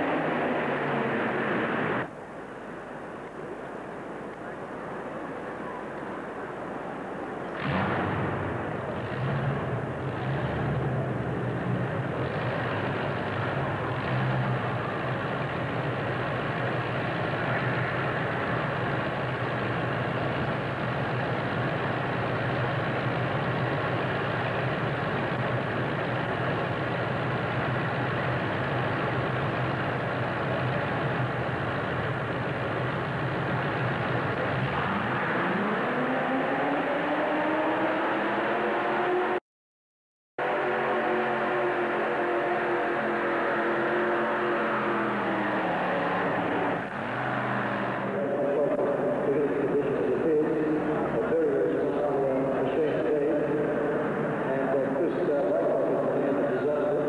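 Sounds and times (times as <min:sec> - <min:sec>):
tractor engine running steadily: 0:00.0 - 0:35.2.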